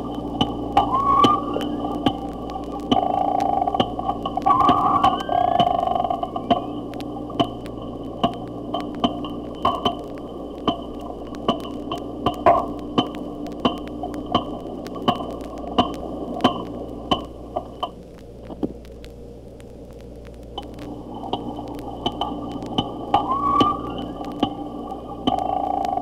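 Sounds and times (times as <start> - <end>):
low hum: 0.0 - 26.0
slowed dolphin clicks: 20.1 - 26.0.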